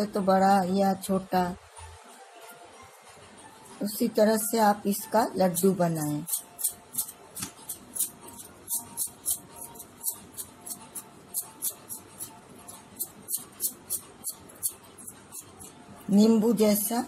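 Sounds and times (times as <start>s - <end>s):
bangles clinking: 6.3s - 16.1s.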